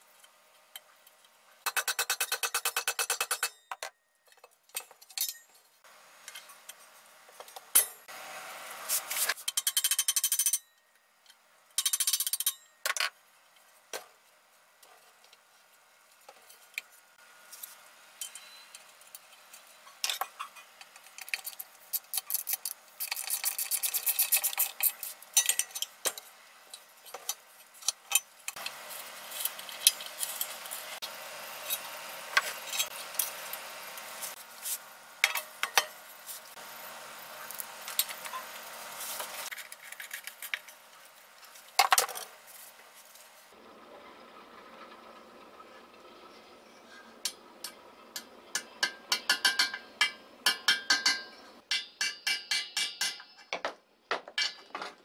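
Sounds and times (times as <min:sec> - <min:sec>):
small metal parts clinking: 0:09.4 - 0:10.8.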